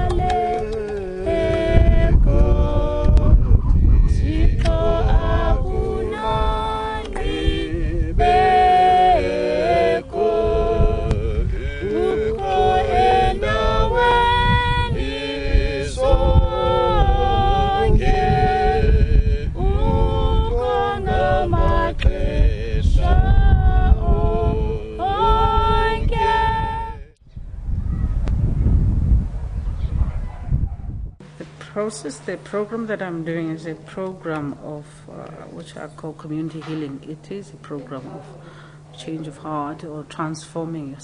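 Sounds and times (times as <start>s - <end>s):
group singing unaccompanied: 0.0s - 27.2s
wind rumble on microphone: 0.0s - 31.2s.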